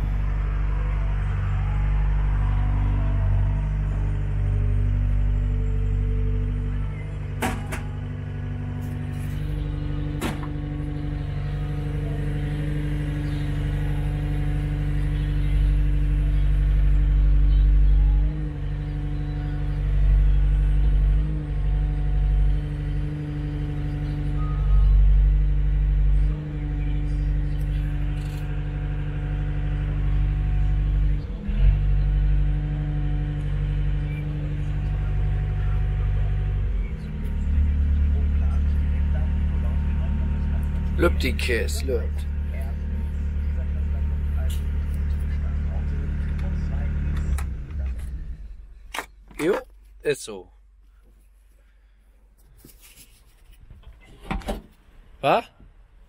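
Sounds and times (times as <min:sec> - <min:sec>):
excavator diesel engine running: 0:00.0 - 0:50.3.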